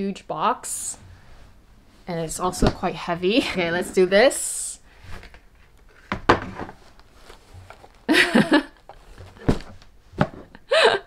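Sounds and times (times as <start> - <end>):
cardboard box knocks and thumps: 6.1 - 6.8, 9.1 - 10.6.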